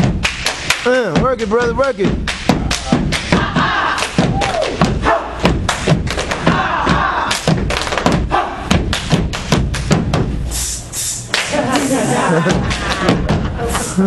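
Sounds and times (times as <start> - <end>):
dancers stomping and slapping legs: 0.0 - 10.4, 12.4 - 13.6
crowd shouting: 3.3 - 5.4, 6.4 - 7.4.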